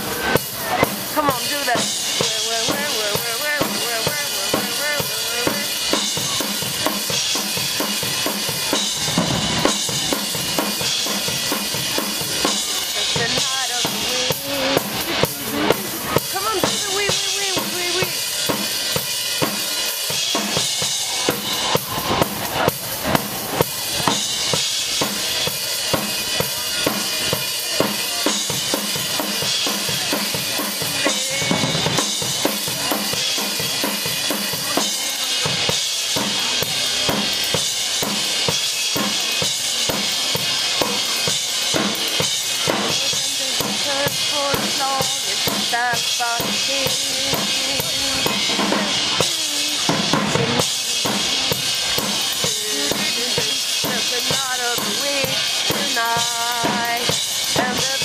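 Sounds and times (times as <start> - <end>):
bass drum: 0.0 - 19.6, 20.3 - 37.3
cymbals washing: 0.0 - 58.0.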